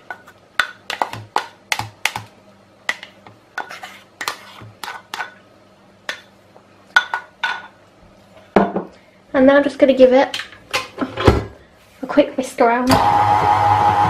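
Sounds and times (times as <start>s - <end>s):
scraper scraping a bowl: 3.6s - 5.1s.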